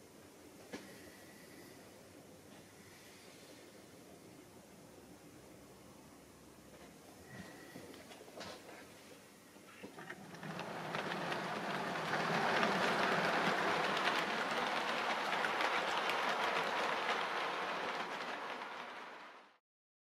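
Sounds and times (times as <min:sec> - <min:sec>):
model train wheels rattling: 0:09.8 - 0:19.6.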